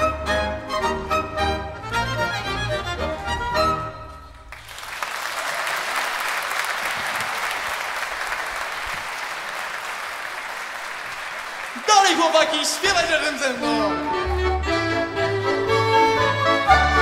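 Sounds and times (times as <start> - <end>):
audience applauding: 4.3 - 13.9
small dance band playing: 10.8 - 17.0.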